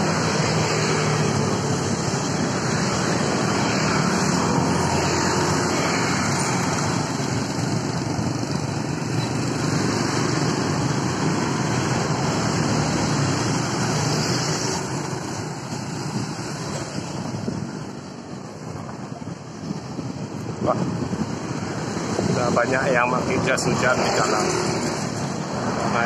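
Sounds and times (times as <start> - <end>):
street traffic noise: 0.0 - 26.0
wind rush on microphone: 0.0 - 26.0.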